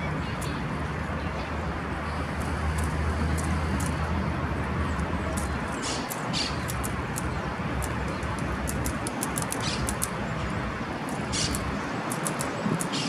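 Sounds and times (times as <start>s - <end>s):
distant city traffic rumble: 0.0s - 13.0s
high-pitched ticks: 5.3s - 10.2s, 11.0s - 13.0s.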